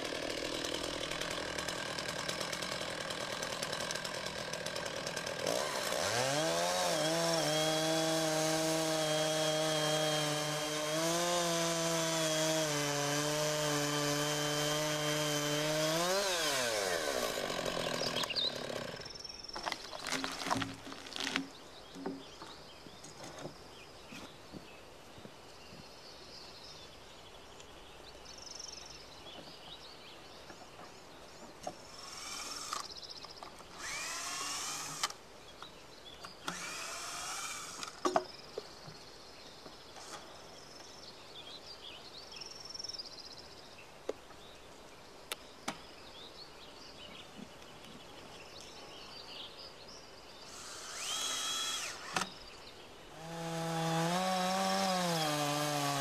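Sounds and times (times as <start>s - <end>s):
chainsaw cutting log: 0.0s - 21.5s, 31.7s - 33.0s, 33.6s - 35.2s, 36.3s - 38.2s, 50.5s - 52.4s, 53.1s - 56.0s
bird chirps: 17.8s - 20.1s
short bursts of cutting: 31.9s - 32.9s, 33.8s - 35.2s, 36.5s - 38.0s, 50.5s - 52.3s.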